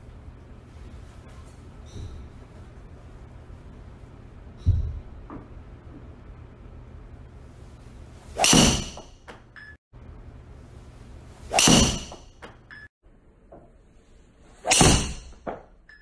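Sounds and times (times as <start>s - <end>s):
golf driver striking ball: 8.4s - 9.1s, 11.5s - 12.3s.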